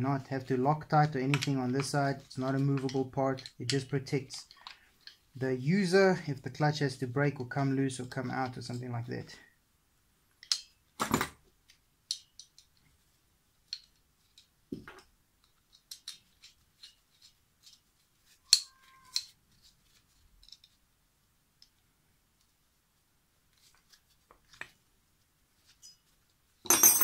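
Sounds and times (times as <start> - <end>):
ringing metal clink: 26.7 - 27.0.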